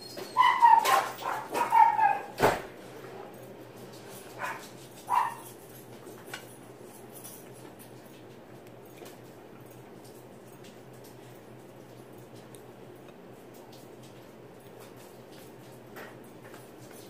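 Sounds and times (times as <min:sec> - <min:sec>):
dog whining and yipping: 0:00.0 - 0:02.4.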